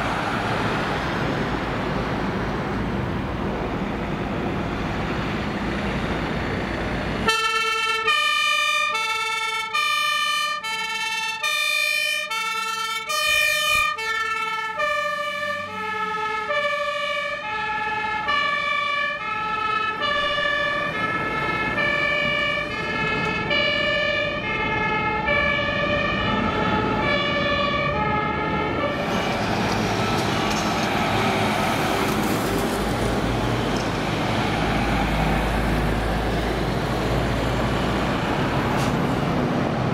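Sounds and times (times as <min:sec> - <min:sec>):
heavy truck engine and tyres: 0:00.0 - 0:39.9
two-tone emergency siren: 0:07.2 - 0:31.3.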